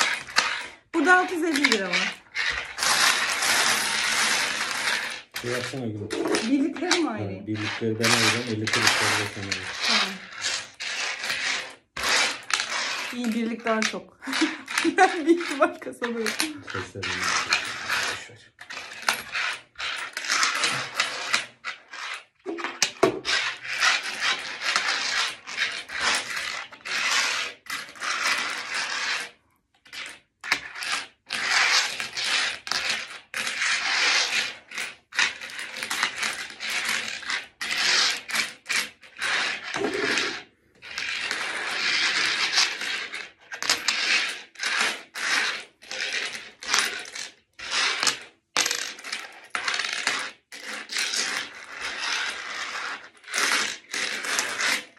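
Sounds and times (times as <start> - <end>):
coins clinking on wooden table: 42.8 - 44.9, 48.0 - 51.4.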